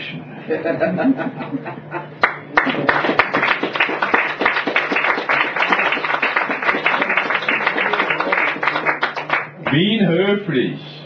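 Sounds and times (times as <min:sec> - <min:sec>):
audience applauding: 0:02.2 - 0:09.8.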